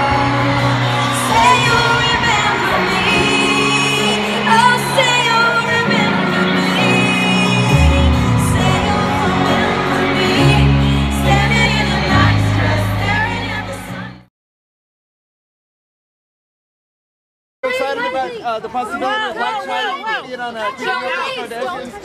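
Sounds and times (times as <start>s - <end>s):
band with steady bass line: 0.0s - 14.2s
woman singing pop song: 0.0s - 14.2s.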